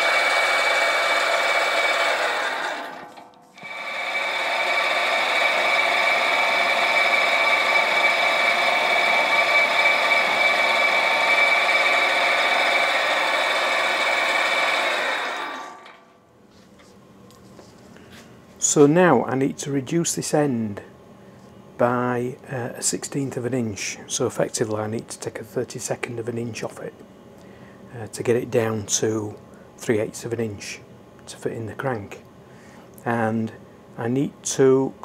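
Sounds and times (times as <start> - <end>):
lathe motor and gear whine: 0.0 - 16.1.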